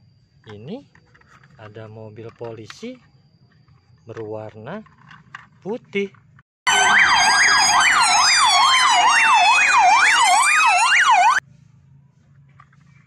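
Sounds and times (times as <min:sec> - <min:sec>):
police siren wail: 0:06.7 - 0:11.4
police siren yelp: 0:06.7 - 0:11.4.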